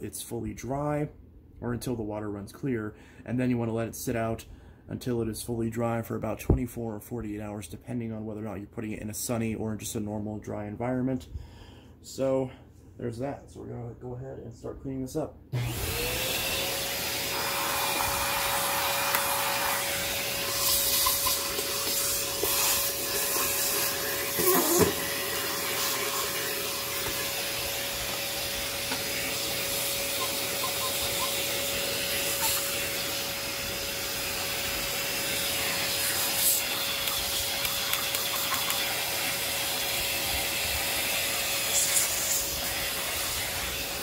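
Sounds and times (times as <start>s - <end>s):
vacuum sucking debris: 15.6s - 30.9s
vacuum motor whine: 15.6s - 44.0s.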